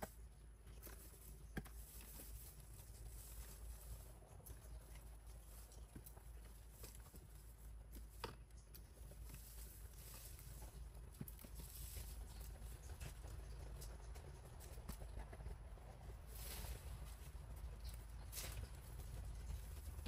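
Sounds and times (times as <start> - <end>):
low steady hum: 0.0 - 20.0
leaves rustling: 0.7 - 8.2, 9.0 - 13.0, 16.2 - 20.0.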